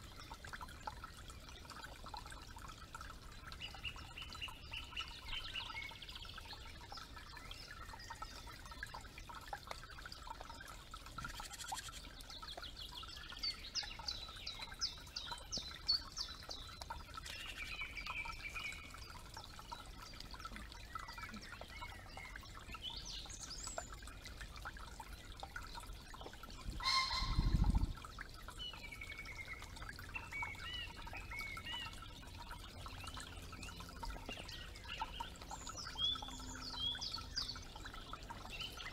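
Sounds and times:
faint creek trickle: 0:00.0 - 0:38.9
birds chirping and trilling: 0:11.0 - 0:38.9.

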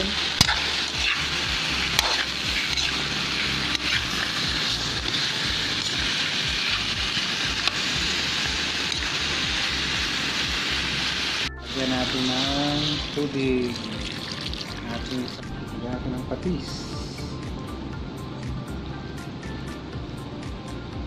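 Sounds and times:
food sizzling in hot pan: 0:00.0 - 0:15.4.

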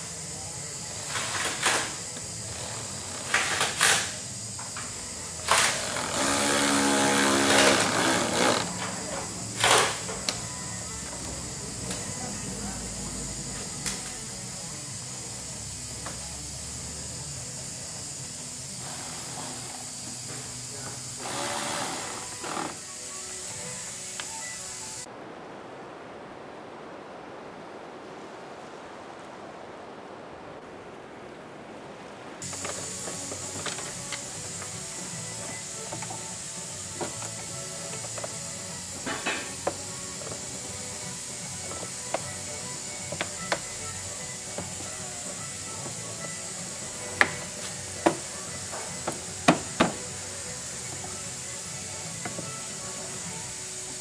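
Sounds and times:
bright hiss with faint tones: 0:00.0 - 0:54.0
cordless driver motor running: 0:05.1 - 0:11.0, 0:17.9 - 0:22.8.

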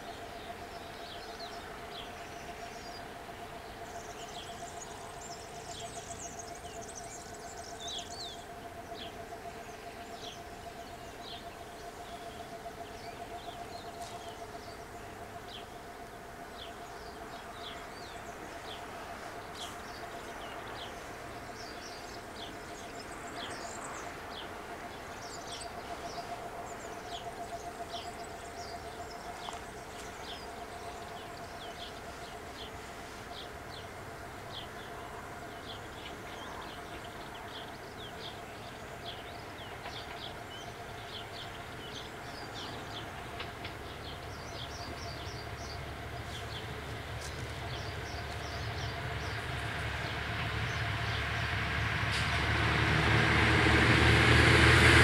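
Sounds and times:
small birds chirping: 0:00.0 - 0:51.4.

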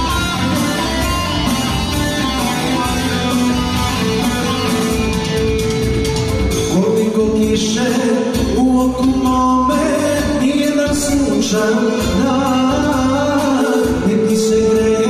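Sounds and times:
accordion: 0:00.0 - 0:06.9
keyboard playing: 0:00.0 - 0:15.0
person singing into microphones: 0:06.6 - 0:15.0.

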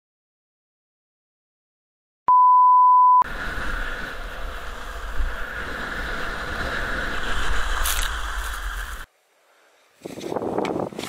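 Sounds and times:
loud single-pitch beep: 0:02.3 - 0:03.2
skis sliding over snow: 0:03.3 - 0:09.1
wind buffeting microphone: 0:03.3 - 0:09.1.

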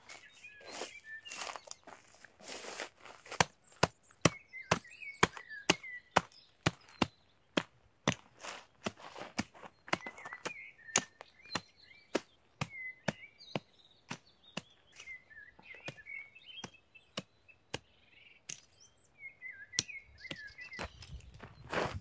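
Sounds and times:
birds chirping: 0:00.0 - 0:22.0
hatchet chopping into dirt: 0:03.3 - 0:18.7, 0:19.7 - 0:20.9.

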